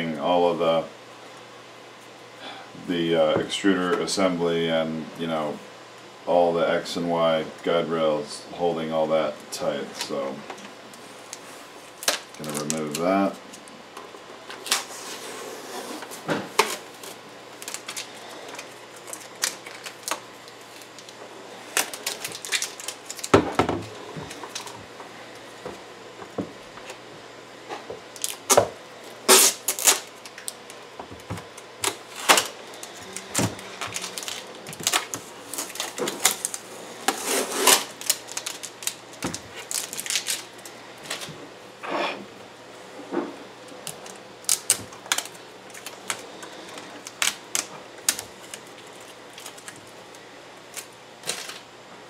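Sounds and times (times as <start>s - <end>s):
tape ripping off plastic: 11.3s - 13.6s, 14.5s - 24.7s, 29.3s - 30.7s, 31.3s - 41.3s, 43.8s - 49.8s.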